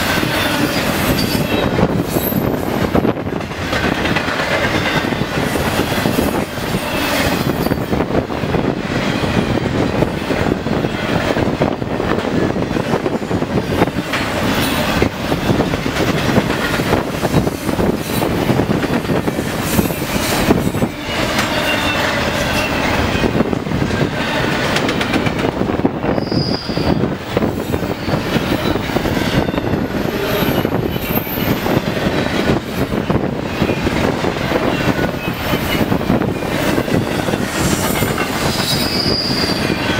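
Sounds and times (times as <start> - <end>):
rumble of train wheels on rail: 0.0 - 39.9
wheels clicking over rail joints: 2.7 - 6.5, 9.9 - 25.6
faint high wheel squeal: 21.0 - 23.0, 26.0 - 27.0, 38.5 - 39.9.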